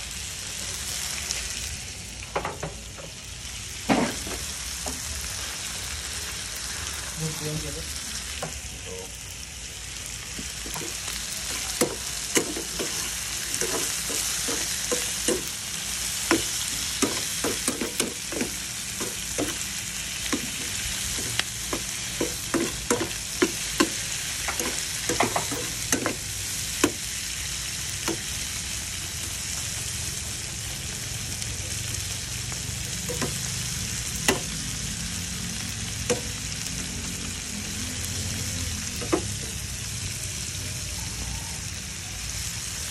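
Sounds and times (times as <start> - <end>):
shrimp sizzling in a frying pan: 0.0 - 42.9
metal spatula scraping a pan: 10.7 - 15.6, 16.2 - 26.3.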